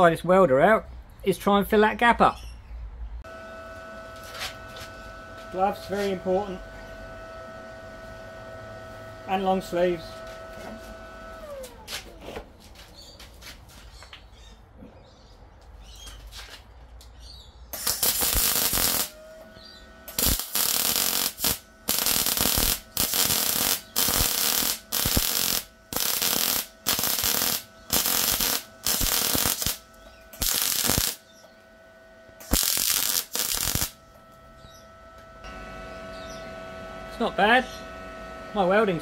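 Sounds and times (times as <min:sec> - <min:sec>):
welder arc bursts: 0:04.2 - 0:10.2, 0:17.7 - 0:34.8.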